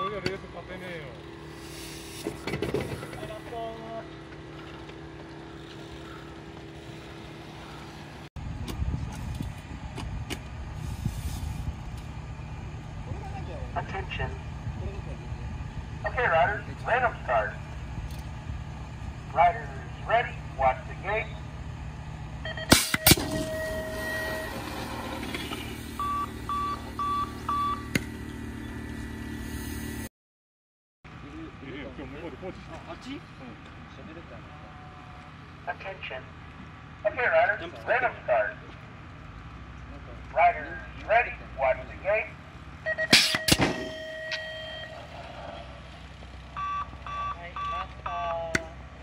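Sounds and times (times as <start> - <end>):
low outdoor rumble: 0.0 - 30.1, 31.1 - 49.0
bikes rolling off: 1.7 - 8.3, 23.0 - 28.9
short beeps: 22.4 - 24.9, 25.7 - 27.9, 42.9 - 45.1, 46.5 - 48.4
long electronic tone: 22.4 - 30.1, 42.9 - 45.3, 46.6 - 48.3.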